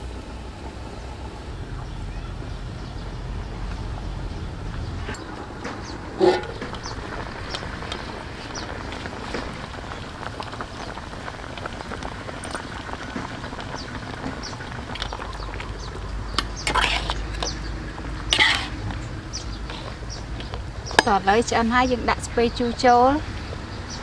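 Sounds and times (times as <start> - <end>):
pot simmering with bubbling crackle: 0.0 - 24.0
ladle stirring pot: 6.2 - 6.8, 16.4 - 21.2.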